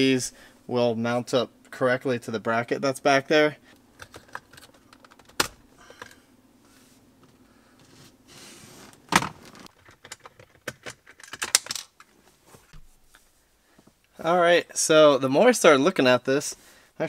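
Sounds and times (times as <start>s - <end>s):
plastic parts clicking and rattling: 4.0s - 6.2s, 9.2s - 12.1s.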